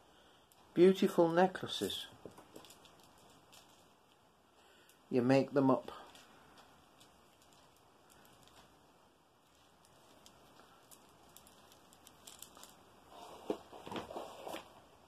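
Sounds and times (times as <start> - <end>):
faint bead clicks: 0.1 - 5.1, 5.8 - 13.1
plastic bag of beads crinkling: 0.5 - 14.7.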